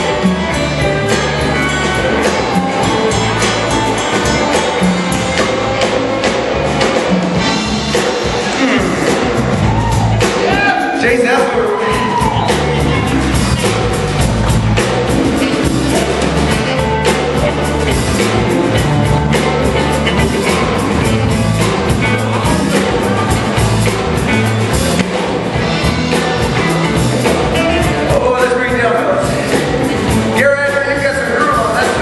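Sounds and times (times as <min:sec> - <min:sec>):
electric guitar: 0:00.0 - 0:11.0, 0:11.7 - 0:30.4
drum kit: 0:00.0 - 0:32.0
electric bass: 0:00.0 - 0:32.0
saxophone: 0:11.9 - 0:24.8, 0:25.5 - 0:28.2.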